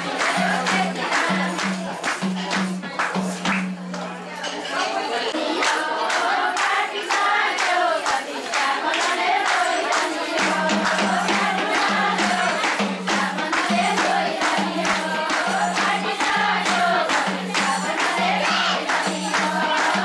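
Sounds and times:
women singing folk song: 0:00.0 - 0:02.0, 0:04.7 - 0:20.0
hand drum: 0:00.0 - 0:04.6, 0:09.1 - 0:20.0
rhythmic hand clapping: 0:00.0 - 0:20.0.

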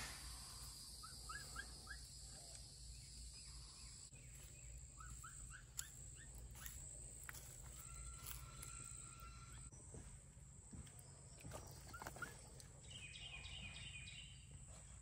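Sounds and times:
bird chirping: 0:00.0 - 0:10.1, 0:10.8 - 0:15.0
low background hum: 0:00.0 - 0:15.0.

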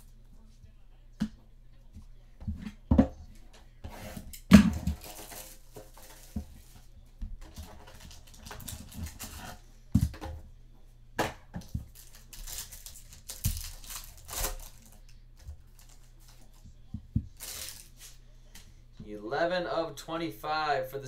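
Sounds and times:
wrappers crinkling and tearing: 0:04.9 - 0:06.7, 0:07.7 - 0:09.6, 0:11.8 - 0:15.1, 0:15.7 - 0:16.6, 0:17.3 - 0:18.2.

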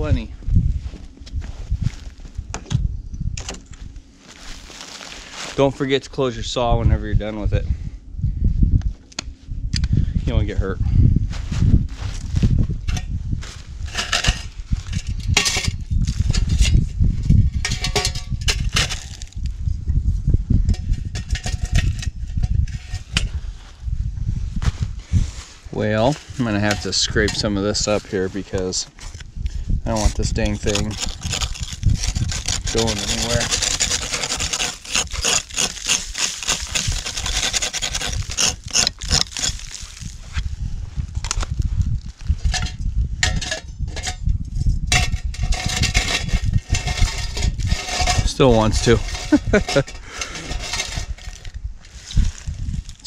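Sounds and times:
steady low rumble: 0:00.0 - 0:53.0
metal blade scraping snow and ice: 0:04.3 - 0:05.9, 0:12.9 - 0:19.4, 0:20.7 - 0:23.4, 0:25.1 - 0:29.3, 0:29.9 - 0:40.5, 0:44.9 - 0:53.0
metal stove parts clinking: 0:12.8 - 0:13.1, 0:13.9 - 0:16.9, 0:17.5 - 0:19.3, 0:20.7 - 0:23.3, 0:26.2 - 0:28.0, 0:42.4 - 0:44.3, 0:44.9 - 0:51.6.

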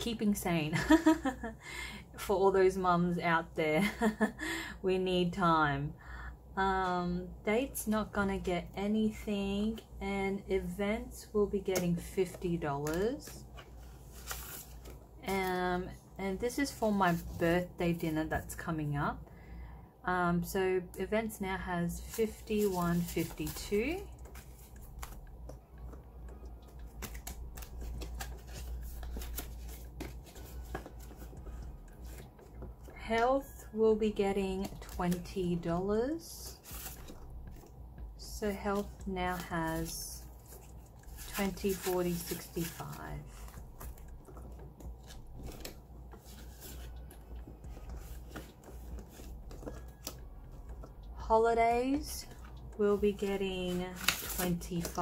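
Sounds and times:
binder pages turning: 0:11.8 - 0:15.0, 0:22.0 - 0:33.0, 0:36.4 - 0:37.8, 0:38.5 - 0:51.1, 0:51.7 - 0:55.0
banknotes crinkling: 0:12.0 - 0:15.5, 0:21.9 - 0:55.0.

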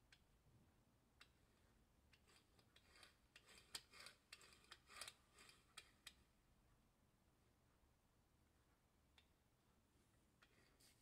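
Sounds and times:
throttle valve clicks and scrapes: 0:02.1 - 0:06.2, 0:10.4 - 0:11.0.

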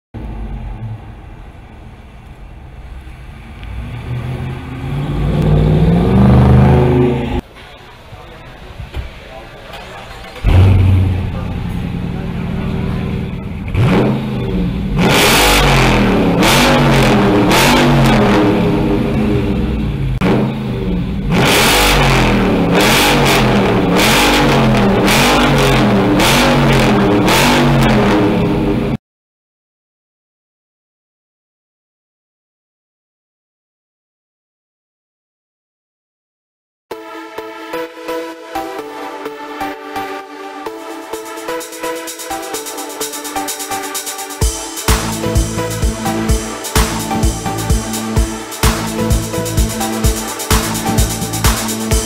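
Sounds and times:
car engine revving: 0:00.2 - 0:07.4, 0:10.2 - 0:29.0, 0:40.9 - 0:52.0
car exhaust rumble driving past: 0:00.2 - 0:07.4, 0:10.4 - 0:15.1.

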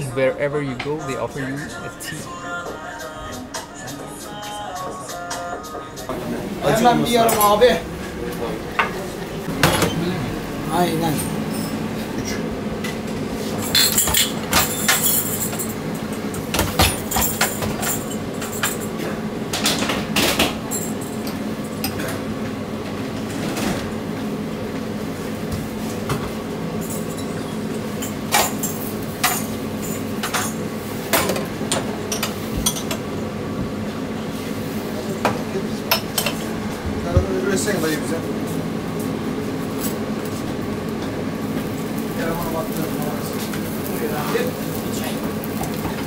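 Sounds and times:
steady hum: 0:00.0 - 0:46.0
dishes and utensils clinking: 0:11.0 - 0:12.9, 0:13.5 - 0:22.2, 0:26.8 - 0:33.1, 0:35.9 - 0:36.5.

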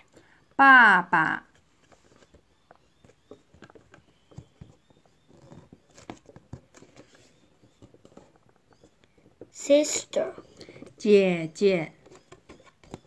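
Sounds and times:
cardboard pages tapping and rustling: 0:01.6 - 0:09.6, 0:11.9 - 0:13.0.

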